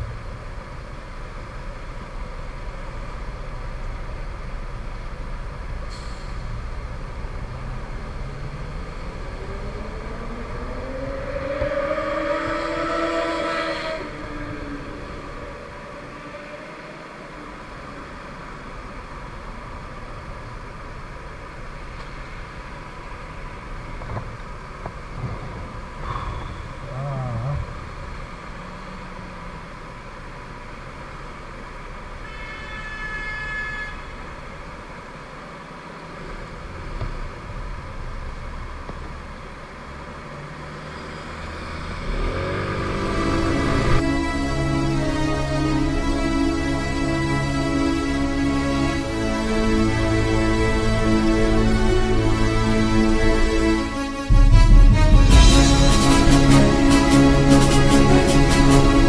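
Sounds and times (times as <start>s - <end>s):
road noise: 0.0s - 59.0s
wind buffeting: 7.3s - 20.4s, 22.4s - 28.6s.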